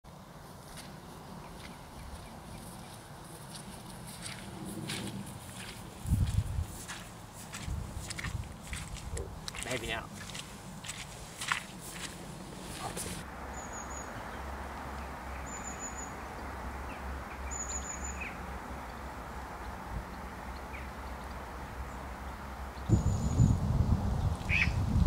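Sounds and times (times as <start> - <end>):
outdoor background noise: 0.0 - 25.0
footsteps squelching in mud: 0.6 - 13.2.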